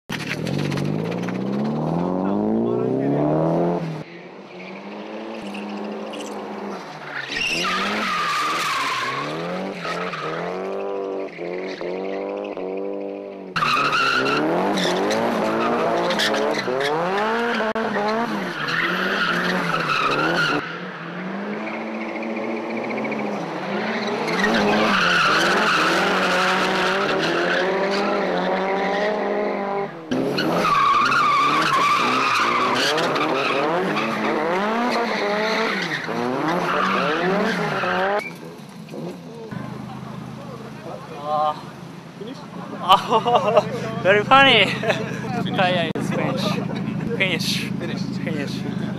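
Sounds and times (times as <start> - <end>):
car engines revving: 0.1 - 48.9
tyres squealing: 5.4 - 12.6, 30.3 - 48.9.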